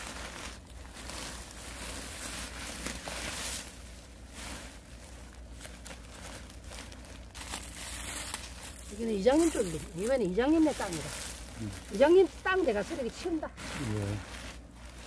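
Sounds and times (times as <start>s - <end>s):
sack rustling and crinkling: 0.0s - 15.0s.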